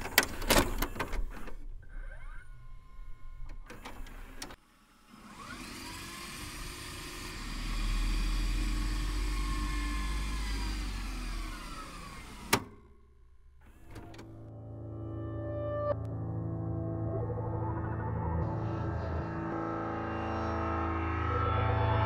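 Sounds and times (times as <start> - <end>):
videotape rewinding whir: 0.0 - 12.8.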